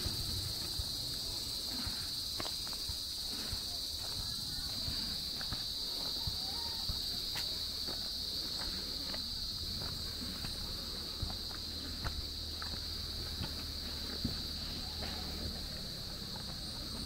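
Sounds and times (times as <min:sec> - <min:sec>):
footsteps on the ground: 0:00.0 - 0:17.0
insects droning: 0:00.0 - 0:17.0.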